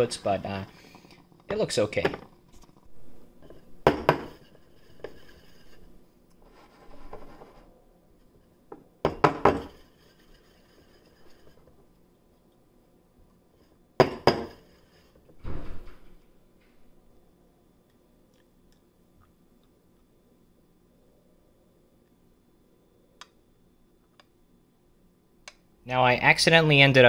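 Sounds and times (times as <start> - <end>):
scraping and shuffling: 2.5 - 8.4
cup and pitcher knocking on countertop: 3.8 - 4.4, 9.0 - 9.8, 14.0 - 14.6.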